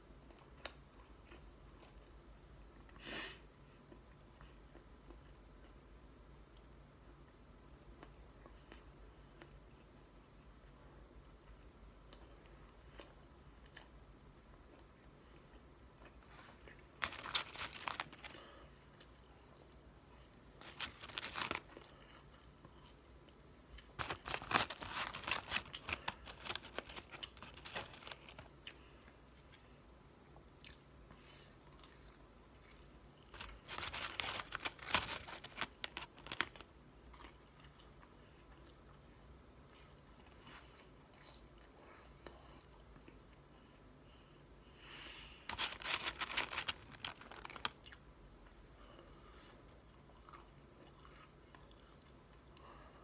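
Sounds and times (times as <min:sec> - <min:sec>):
chewing crunchy food: 0:30.3 - 0:43.5, 0:45.5 - 0:52.8.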